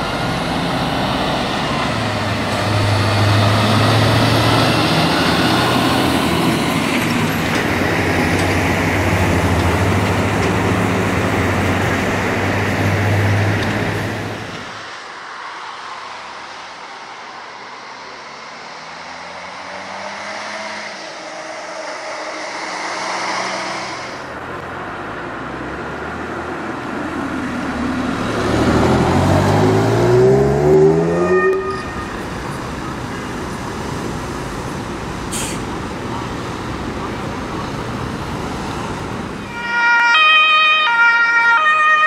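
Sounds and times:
engine accelerating: 0.0 - 14.4, 18.2 - 25.0, 27.6 - 32.7
vehicles driving past: 0.0 - 42.0.

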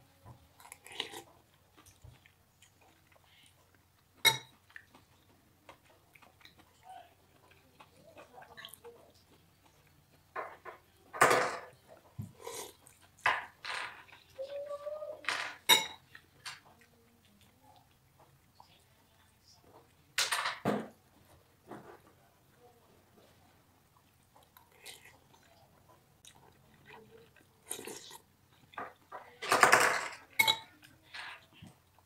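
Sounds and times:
slurping noodles and broth: 12.3 - 12.9
metal spoon clinking ceramic bowl: 15.7 - 16.0, 30.4 - 30.7.

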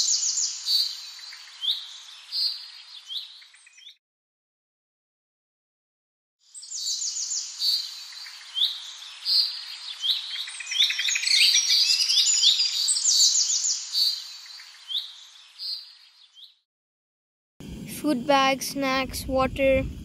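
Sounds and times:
songbirds singing: 0.0 - 4.0, 6.5 - 16.6
short rising bird chirps: 6.6 - 16.6.

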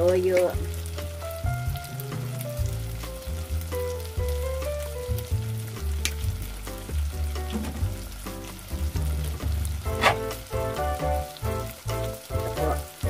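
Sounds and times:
background music: 0.0 - 13.0
tofu sizzling in a pot: 0.0 - 13.0.

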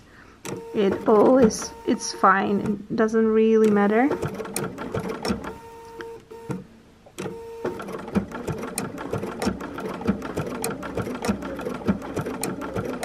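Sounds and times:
sewing machine stitching: 0.5 - 2.8, 3.6 - 6.6, 7.2 - 13.0.

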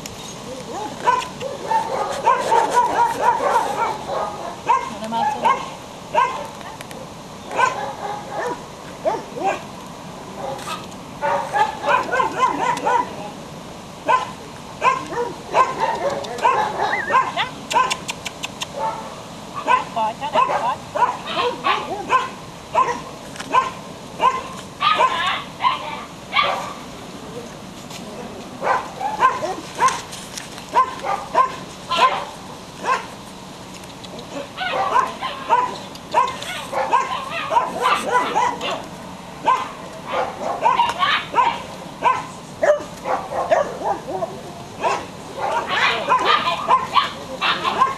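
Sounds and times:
puppy yipping: 0.7 - 6.8, 10.5 - 13.1, 14.1 - 18.0, 19.6 - 26.8, 30.7 - 33.1, 34.3 - 38.8, 39.4 - 47.9
puppy yipping and whimpering: 14.8 - 18.0, 20.4 - 26.7, 44.9 - 47.9.

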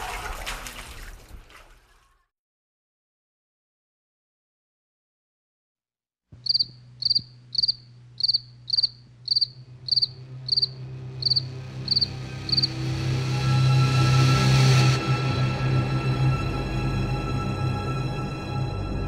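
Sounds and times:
cricket chirping: 6.4 - 12.8
low droning hum: 6.4 - 14.6.

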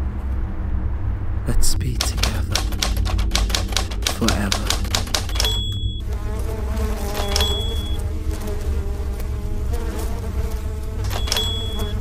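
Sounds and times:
low buzzing drone: 0.0 - 12.0
typewriter keystroke clack: 2.0 - 5.8, 7.1 - 7.6, 11.1 - 11.7
bell ding: 5.4 - 6.0.

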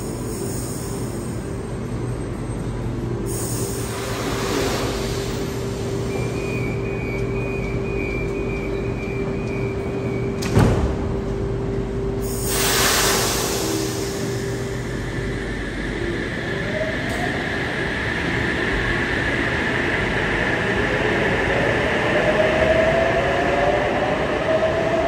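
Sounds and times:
electric train humming: 0.0 - 25.0
train doors shutting thump: 10.3 - 11.4
air hissing: 12.2 - 16.2.

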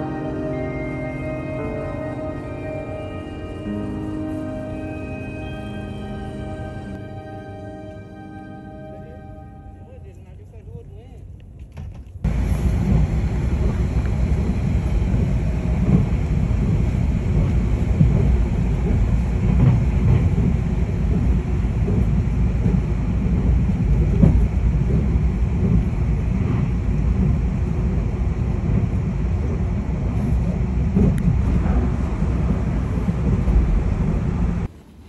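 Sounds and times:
vehicle interior rumble: 9.8 - 35.0
wind buffeting on microphone: 11.4 - 35.0.

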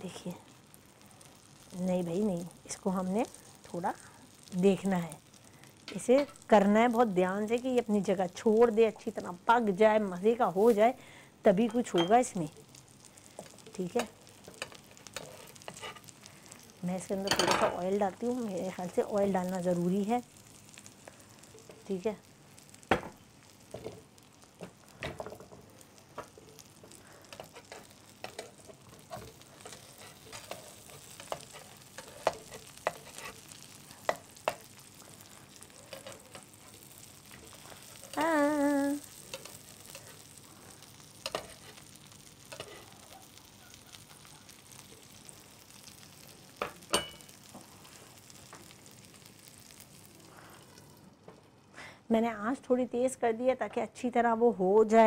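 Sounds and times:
omelette sizzling in oil: 0.0 - 51.7
spatula tapping and scraping pan: 27.3 - 34.8.

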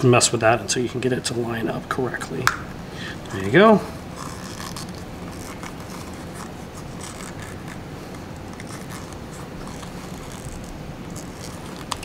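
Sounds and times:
steady low hum: 0.0 - 12.0
rubber rubbing: 4.0 - 12.0.

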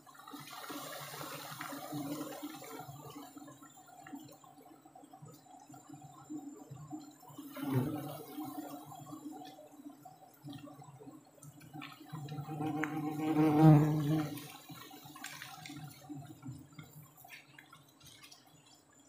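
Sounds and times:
honey bees buzzing: 12.4 - 14.6.

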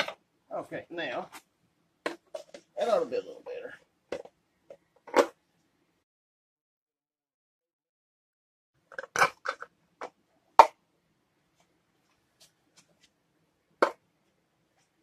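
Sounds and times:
plastic pipe knocks and clacks: 2.0 - 2.7.

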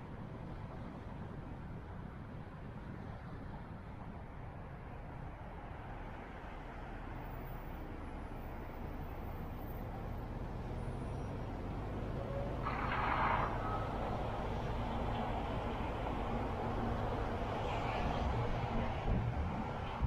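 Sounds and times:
car engine and road rumble: 0.0 - 20.0.

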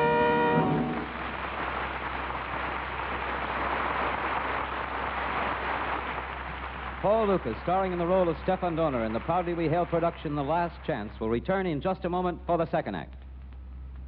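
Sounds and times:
orchestral chord: 0.0 - 1.4
low mains hum: 0.0 - 14.0.

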